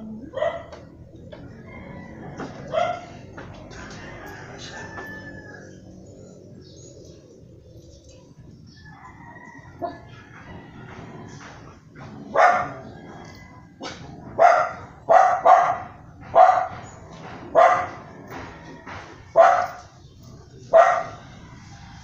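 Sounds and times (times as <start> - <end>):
dog barking: 0.2 - 0.9, 2.7 - 3.2, 9.8 - 10.1, 12.2 - 12.9, 13.8 - 18.5, 19.4 - 19.9, 20.7 - 21.3.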